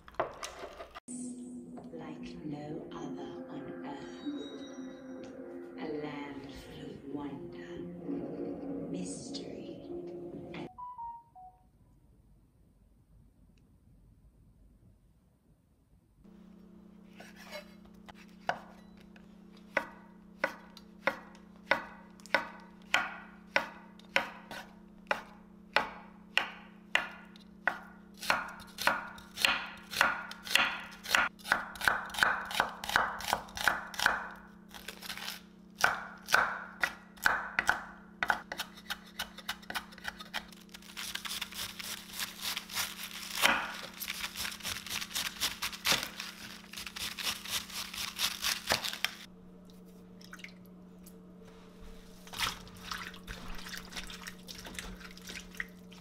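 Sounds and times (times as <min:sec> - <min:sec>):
knife chopping on wooden board: 0:17.2 - 0:18.7, 0:19.7 - 0:34.3, 0:35.8 - 0:40.4, 0:42.4 - 0:46.1.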